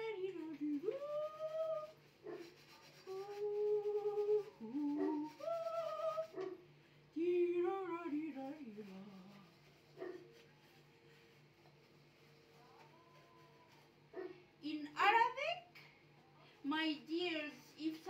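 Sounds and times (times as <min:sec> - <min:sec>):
woman humming: 0:00.0 - 0:01.9, 0:03.1 - 0:06.4.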